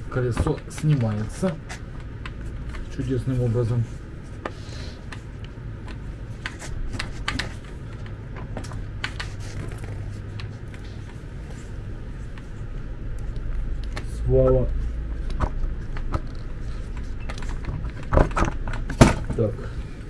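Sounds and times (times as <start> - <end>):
low steady hum: 0.0 - 20.0
wheelchair wheel clicking and knocking: 0.1 - 3.0.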